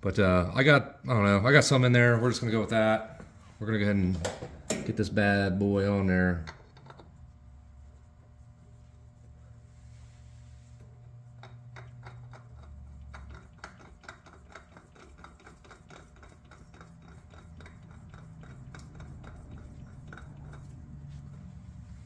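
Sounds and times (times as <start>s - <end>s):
faint low hum: 0.0s - 22.0s
oil filter clicking and rubbing: 6.4s - 7.3s, 10.7s - 22.0s.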